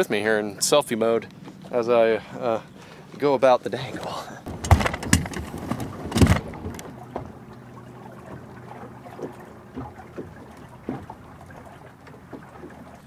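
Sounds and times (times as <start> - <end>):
water lapping against boat hull: 0.0 - 13.0
sharp thump: 4.5 - 6.8
knocks on boat: 4.5 - 7.4, 9.1 - 12.8.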